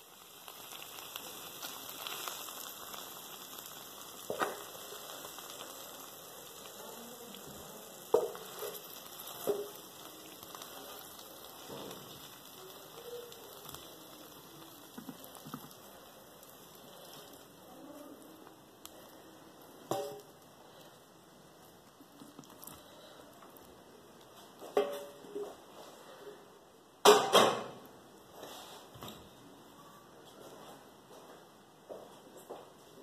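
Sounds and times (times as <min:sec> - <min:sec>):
ribs sizzling in frying pan: 0:00.0 - 0:23.6.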